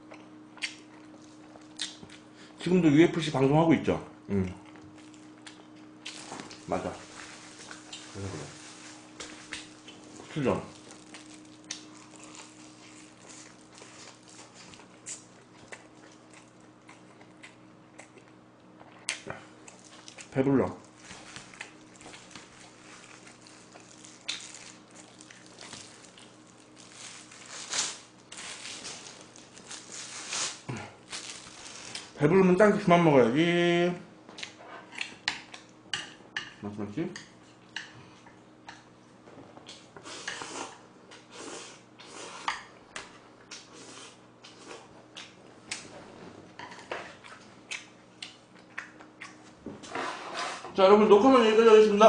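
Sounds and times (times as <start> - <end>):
person chewing: 0.0 - 2.3, 4.4 - 32.2, 39.6 - 45.9, 46.7 - 49.6
faint room hum: 0.0 - 52.0
plastic gloves rustling: 6.1 - 15.0, 20.8 - 32.5.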